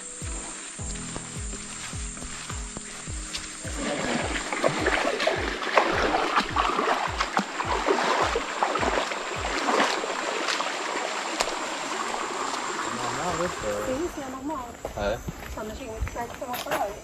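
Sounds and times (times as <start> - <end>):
music with low beat: 0.0 - 10.2
feet splashing in water: 0.0 - 14.2
running water: 0.0 - 16.0.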